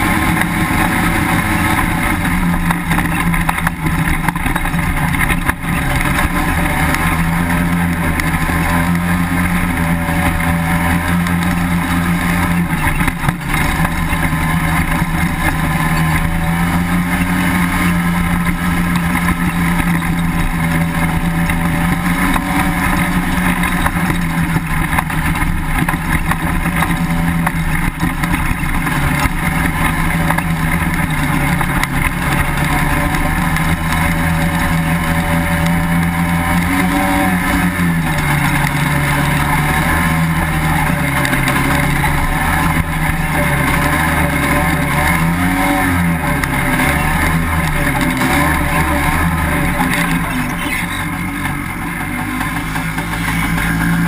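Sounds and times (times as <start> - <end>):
dune buggy engine running: 0.0 - 54.0.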